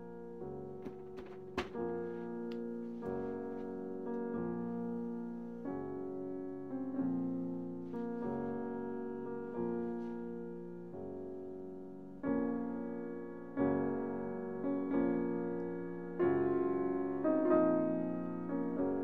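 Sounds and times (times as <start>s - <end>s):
slow piano chords: 0.0s - 19.0s.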